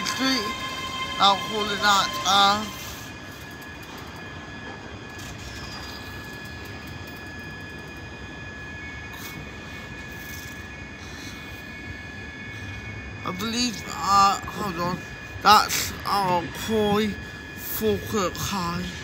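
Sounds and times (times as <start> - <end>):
electric train humming: 0.0 - 19.0
high whining electrical tones: 0.0 - 19.0.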